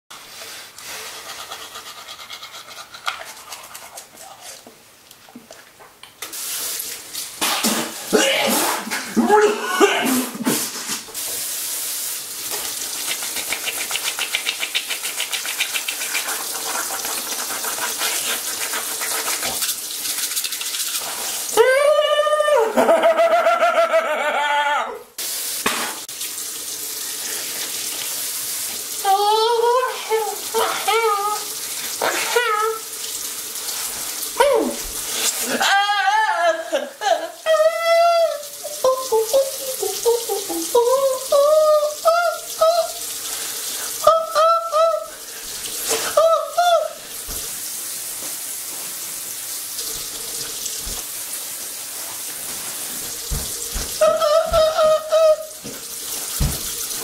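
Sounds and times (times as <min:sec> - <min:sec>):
toothbrush scrubbing: 0:00.1 - 0:04.8, 0:12.5 - 0:21.6, 0:33.6 - 0:35.6, 0:52.0 - 0:57.0
watery hiss: 0:06.3 - 0:09.1, 0:10.1 - 0:21.6, 0:29.9 - 0:35.6
man vocalising while brushing: 0:37.9 - 0:43.0, 0:53.9 - 0:55.6.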